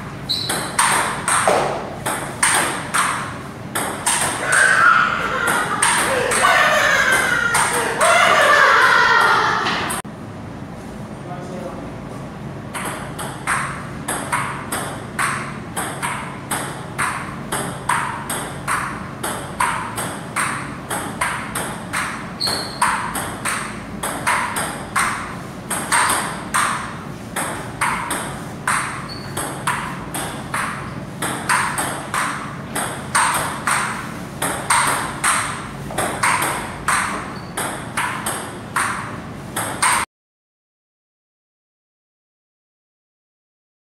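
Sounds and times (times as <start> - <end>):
ping pong ball clicking: 0.3 - 4.8, 5.5 - 6.4, 12.7 - 40.1.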